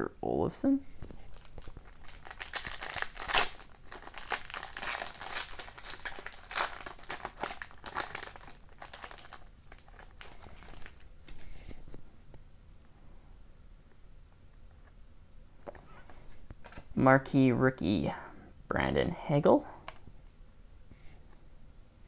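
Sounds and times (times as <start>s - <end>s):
foil wrapper crinkling and tearing: 1.2s - 11.1s.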